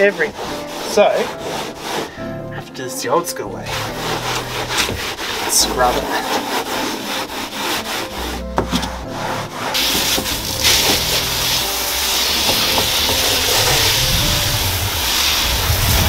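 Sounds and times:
sponge scourer scrubbing floor: 0.0 - 2.6, 3.5 - 16.0
garden hose spraying water: 9.8 - 16.0.

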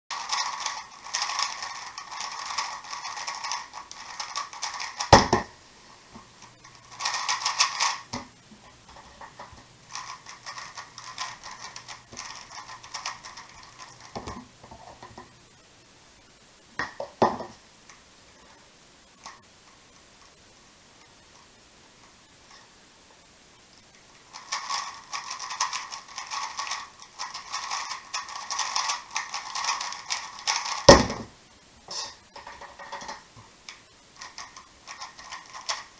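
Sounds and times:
puzzle cube clacking: 0.1 - 5.6, 6.4 - 8.2, 8.8 - 15.2, 24.3 - 31.3, 31.9 - 35.9.

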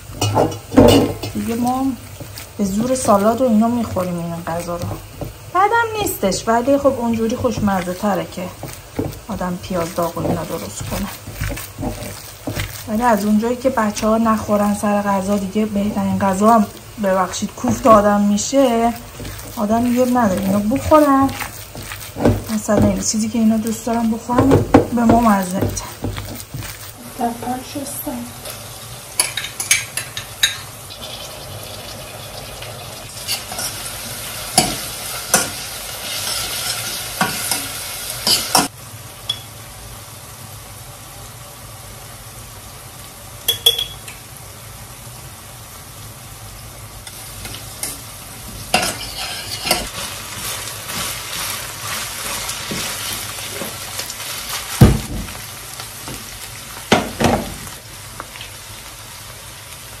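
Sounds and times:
meat and onions sizzling in pan: 0.0 - 60.0
pots and utensils clattering: 0.1 - 1.6, 7.2 - 14.5, 17.4 - 26.9, 48.7 - 51.5.

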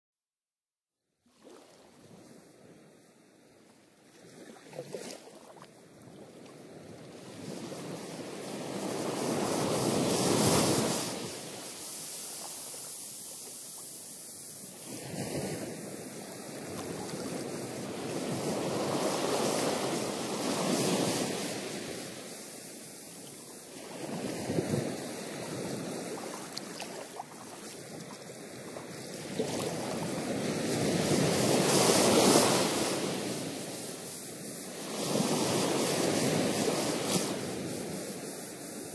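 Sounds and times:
ocean surf breaking on rocks: 7.5 - 23.0, 23.6 - 38.0.

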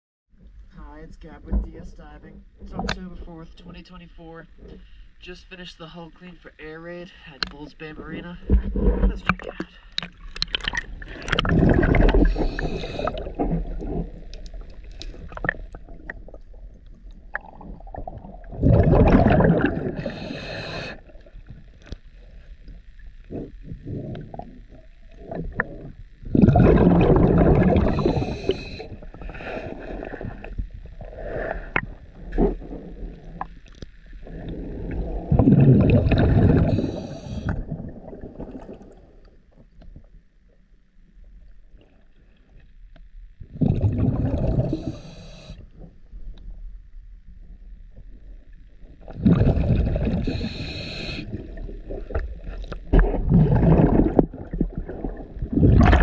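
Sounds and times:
underwater bubble noise: 8.3 - 40.6, 43.4 - 56.0
diver exhaling bubbles: 8.6 - 21.6, 23.3 - 33.5, 34.2 - 39.2, 43.5 - 45.5, 49.0 - 56.0.

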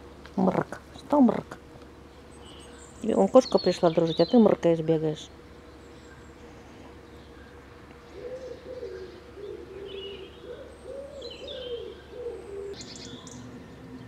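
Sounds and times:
pigeon cooing: 6.4 - 14.0.

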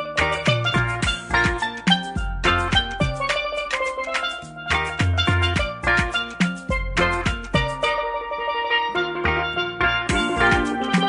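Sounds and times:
drum beat: 0.0 - 8.0, 10.1 - 11.0
steel pan notes: 0.0 - 11.0.

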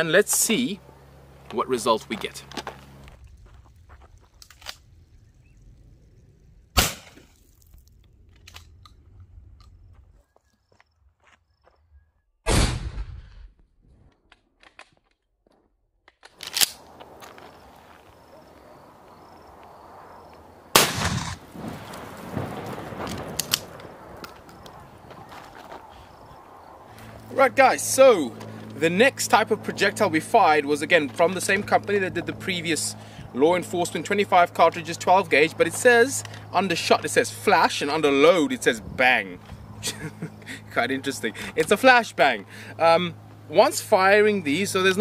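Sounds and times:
faint footsteps on dirt: 0.0 - 12.1, 14.9 - 15.8, 16.7 - 20.6, 21.4 - 33.7
shotgun blast with echo: 6.8 - 7.2, 20.7 - 21.5.

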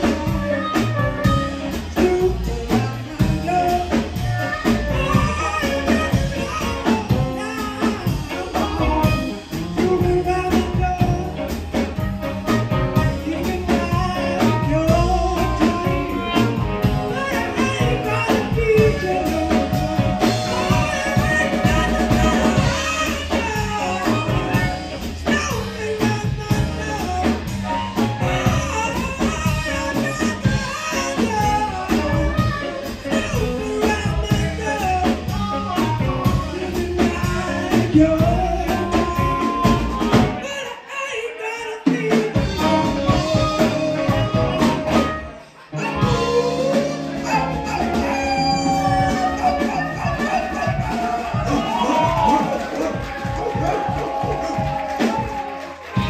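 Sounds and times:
harmonica: 0.0 - 11.4
upright bass: 0.0 - 40.6, 41.8 - 56.0
amplified harmonica: 0.0 - 41.4
drums: 0.0 - 56.0
electric guitar: 0.0 - 56.0
live blues band playing: 0.0 - 56.0.

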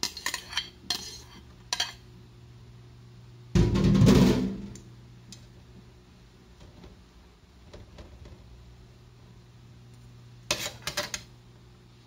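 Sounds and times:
metal spoon scraping a tray: 0.0 - 2.0, 10.5 - 11.3.

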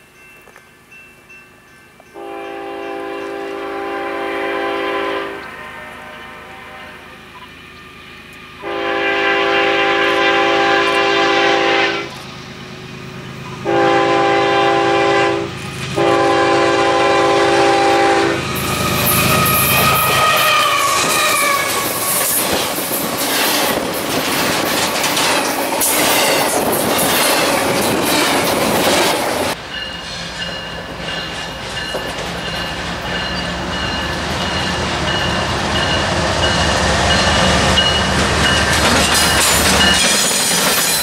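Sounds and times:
train rumble: 0.0 - 41.0
locomotive air horn: 2.2 - 7.4, 8.6 - 12.2, 13.6 - 22.4.

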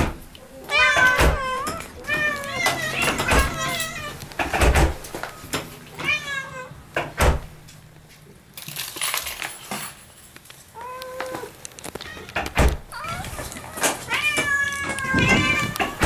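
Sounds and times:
cat meowing: 0.5 - 4.2, 5.9 - 6.8, 10.8 - 16.0.

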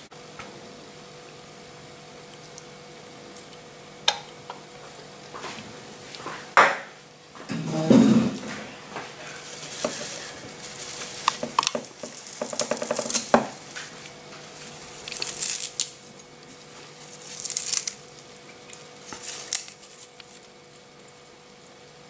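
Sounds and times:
scraping rustles: 7.5 - 20.6.

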